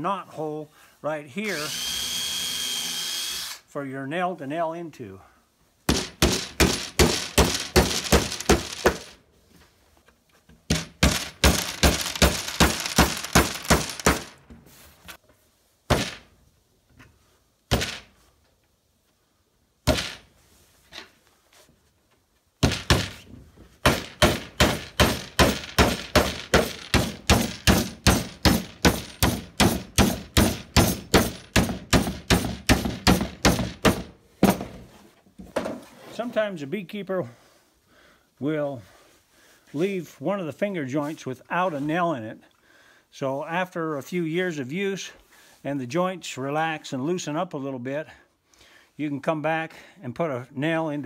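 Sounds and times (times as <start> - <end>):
hammer driving nails into wood: 5.9 - 9.2, 10.7 - 14.4, 15.9 - 16.3, 17.7 - 18.1, 19.8 - 20.3, 22.6 - 34.8.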